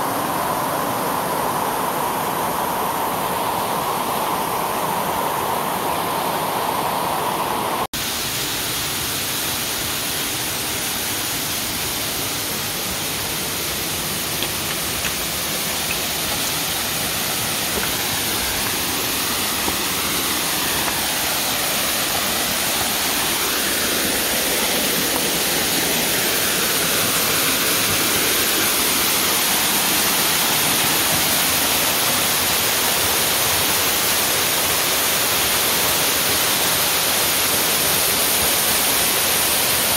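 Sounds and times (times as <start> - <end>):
waterfall splashing onto rock: 8.1 - 39.9.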